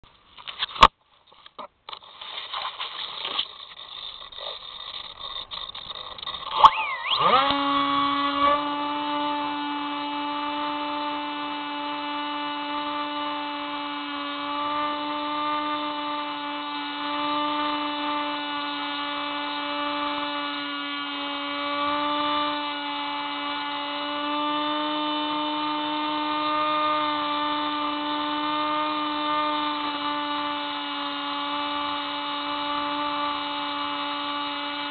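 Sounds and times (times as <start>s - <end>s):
rustling: 0.1s - 7.4s
electric motor buzzing whine: 1.9s - 34.9s.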